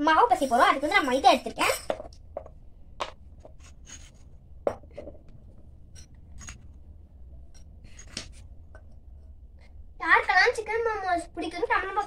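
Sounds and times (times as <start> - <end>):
spoon scraping steel bowl: 3.5 - 4.4.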